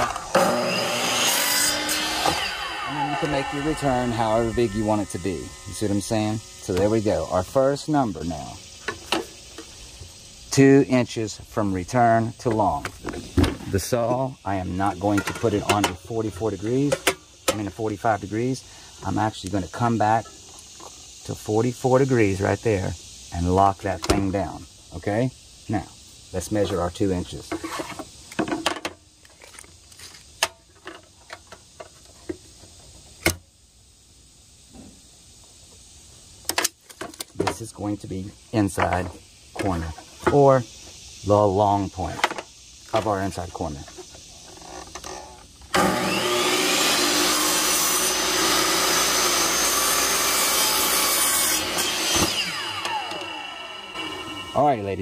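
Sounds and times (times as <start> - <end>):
saw motor winding down whine: 0.0 - 7.7, 45.7 - 55.0
miter saw cutting trim: 0.0 - 8.2, 45.7 - 55.0.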